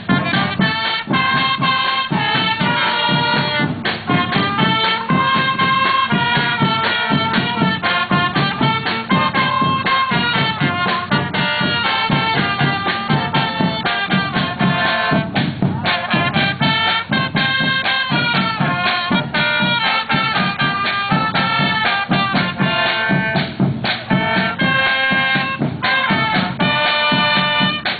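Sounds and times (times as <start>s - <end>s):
marching band brass: 0.0s - 27.9s
regular drum beat: 0.0s - 27.9s.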